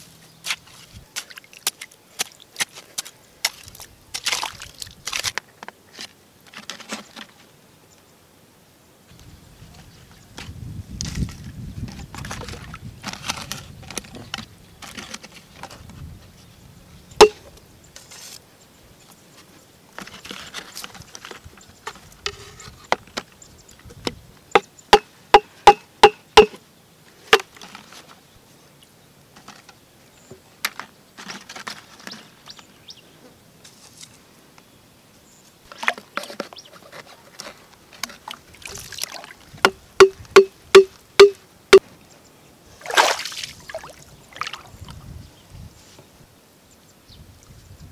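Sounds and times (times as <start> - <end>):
splashing in muddy water: 1.2 - 5.4, 38.1 - 41.4, 42.8 - 44.9
sharp hollow knocks: 24.6 - 26.6, 39.6 - 41.4.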